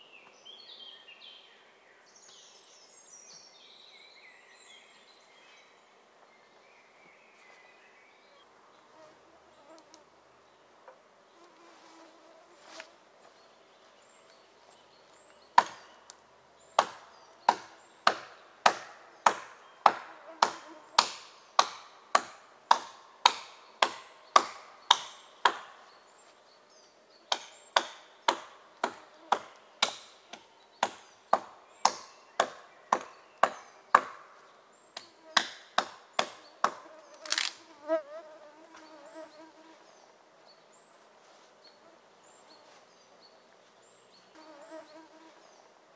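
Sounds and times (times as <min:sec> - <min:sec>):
axe chopping wood: 0:15.6 - 0:15.8, 0:16.8 - 0:25.7, 0:27.3 - 0:34.2.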